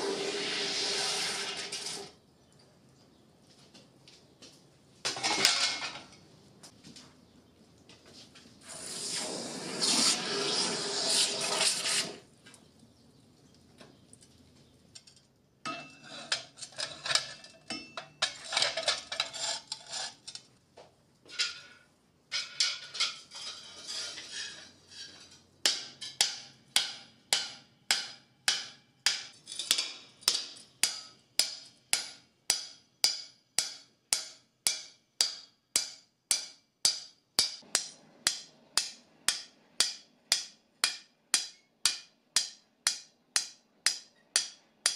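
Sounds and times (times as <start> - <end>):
hot metal sizzling in water: 0.0 - 2.2, 8.6 - 12.3.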